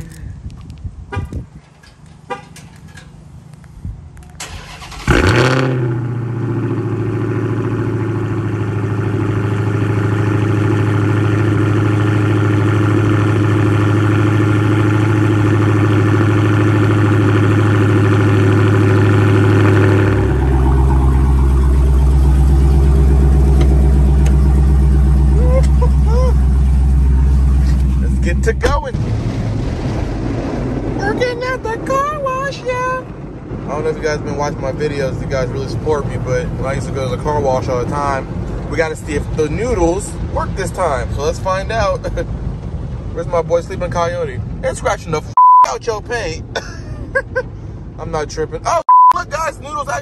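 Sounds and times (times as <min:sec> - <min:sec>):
car engine starting: 0:01.6 - 0:50.0
loud car engine idling: 0:04.4 - 0:31.1.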